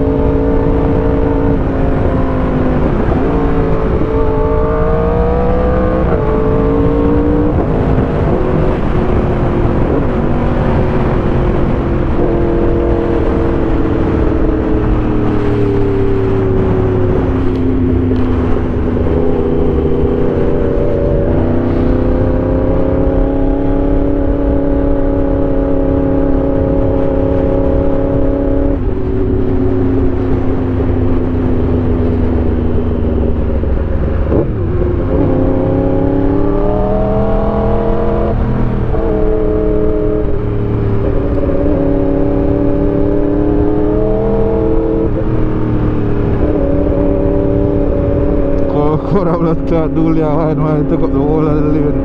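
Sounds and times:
low rushing noise: 0:00.0 - 0:52.0.

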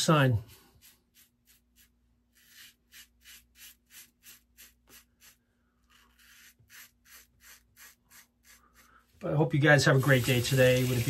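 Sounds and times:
razor scraping stubble: 0:00.5 - 0:09.0.

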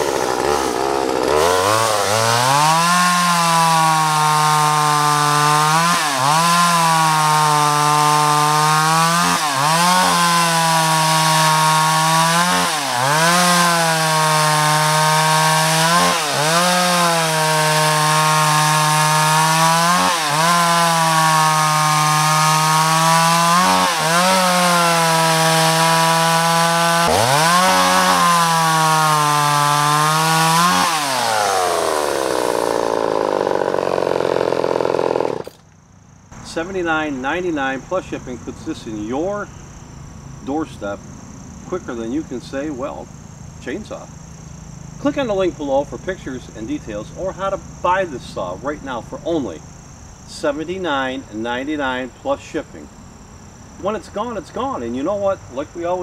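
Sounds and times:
chainsaw cutting through log: 0:00.0 - 0:35.7.

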